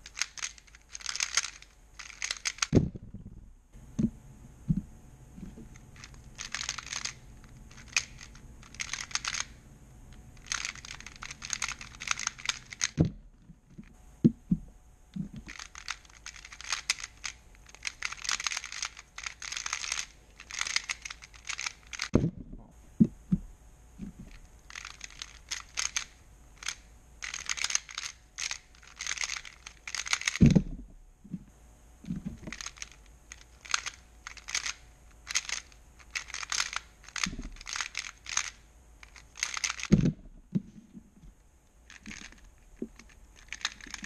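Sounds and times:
plastic puzzle clicking: 0:00.0 - 0:02.8, 0:05.6 - 0:09.6, 0:10.4 - 0:13.1, 0:15.2 - 0:22.2, 0:24.0 - 0:30.6, 0:32.1 - 0:40.1, 0:41.9 - 0:44.0
heavy thumps: 0:02.6 - 0:06.1, 0:10.7 - 0:15.6, 0:22.1 - 0:24.4, 0:30.4 - 0:32.6, 0:39.9 - 0:41.4.

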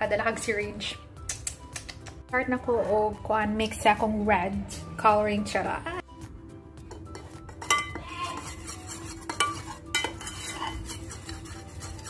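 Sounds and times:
metal spoon stirring in a saucepan: 0:06.8 - 0:12.0
spoon clinking against metal: 0:06.9 - 0:12.0.

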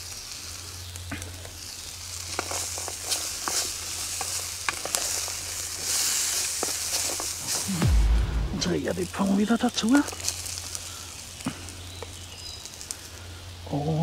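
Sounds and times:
sausage and vegetables sizzling in pan: 0:00.0 - 0:07.8, 0:08.7 - 0:14.0.

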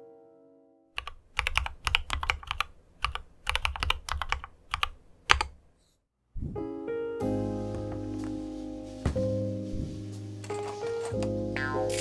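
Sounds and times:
clicky mechanical keyboard typing: 0:01.0 - 0:05.6.

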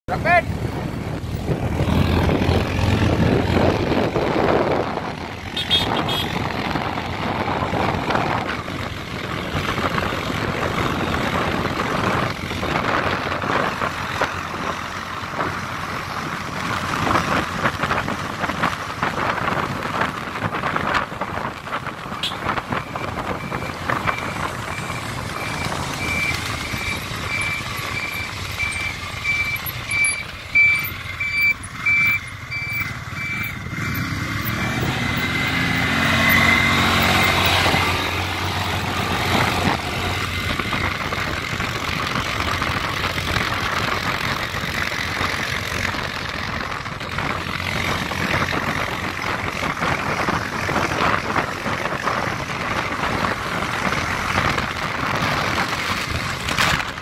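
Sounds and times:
motorcycle engine and road noise: 0:00.0 - 0:57.0
wind rushing over microphone: 0:00.1 - 0:30.0, 0:31.2 - 0:57.0
quad bike riding: 0:00.1 - 0:57.0
high electronic beeps: 0:22.2 - 0:34.0.

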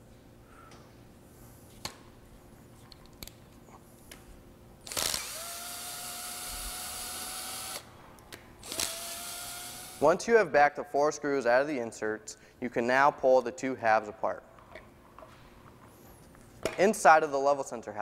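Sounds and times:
screw gun motor whining: 0:04.8 - 0:07.9, 0:08.6 - 0:10.0.

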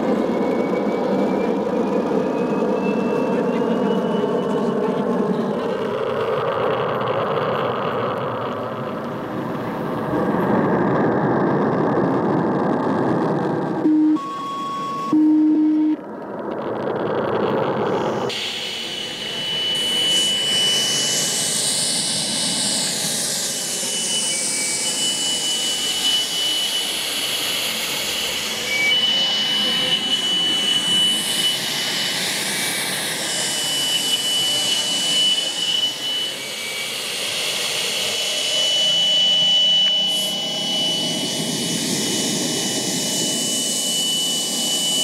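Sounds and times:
steady high tone: 0:13.7 - 0:45.0
short steady beeps: 0:13.8 - 0:16.0.

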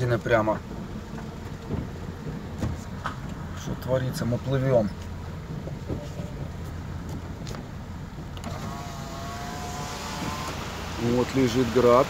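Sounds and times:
rain taps on car body: 0:00.0 - 0:08.6
car engine and road rumble: 0:00.0 - 0:12.0
rain hiss: 0:00.0 - 0:12.0
power window motor whine: 0:08.3 - 0:11.0.

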